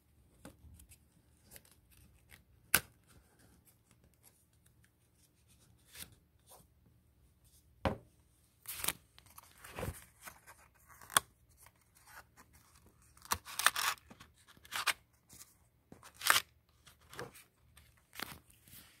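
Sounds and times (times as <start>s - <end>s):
paper pages rustling and crinkling: 8.6s - 19.0s.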